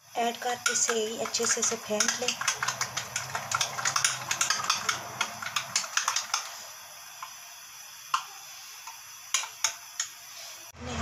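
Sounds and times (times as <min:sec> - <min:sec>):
spoon tapping bowl beating egg: 0:00.2 - 0:06.5, 0:08.9 - 0:10.2.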